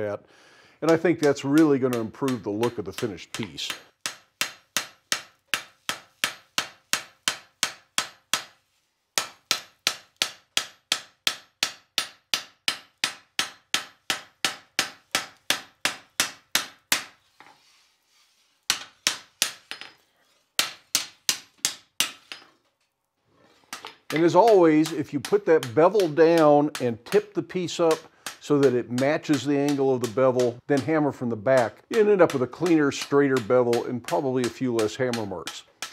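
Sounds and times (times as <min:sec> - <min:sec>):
hammer striking steel on anvil: 0:00.9 - 0:08.6, 0:09.2 - 0:17.2, 0:18.7 - 0:20.0, 0:23.7 - 0:30.9, 0:31.5 - 0:35.9.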